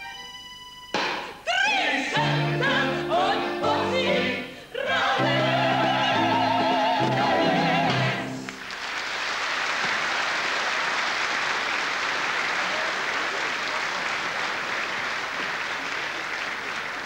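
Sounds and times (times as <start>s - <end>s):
ensemble singing with orchestra: 1.4s - 8.6s
audience applauding: 8.4s - 17.0s.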